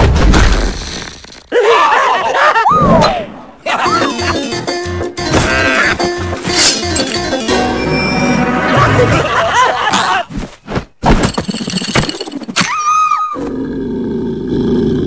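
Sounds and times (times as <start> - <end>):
cartoon sound effects: 3.8 - 9.1
steady low growl: 13.4 - 15.0.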